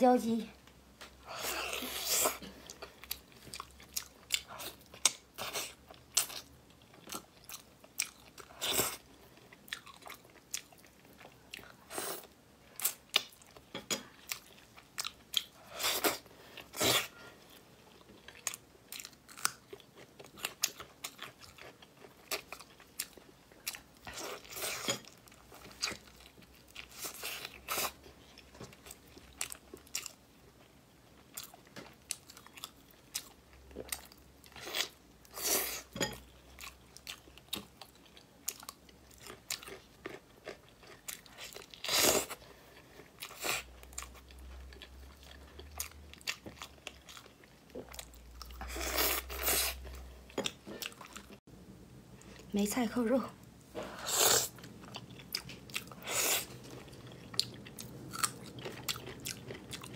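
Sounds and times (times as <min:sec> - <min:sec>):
person chewing and biting food: 0:01.4 - 0:17.2, 0:54.0 - 0:59.9.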